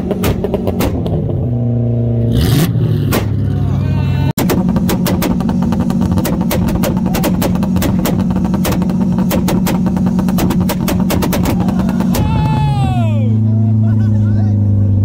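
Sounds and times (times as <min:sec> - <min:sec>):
exhaust cracking and popping: 0:00.0 - 0:01.6, 0:04.4 - 0:13.0.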